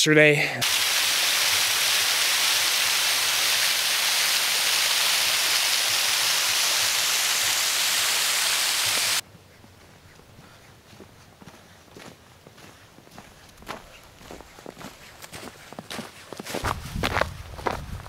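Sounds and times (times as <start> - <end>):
running water rushing: 0.6 - 9.2.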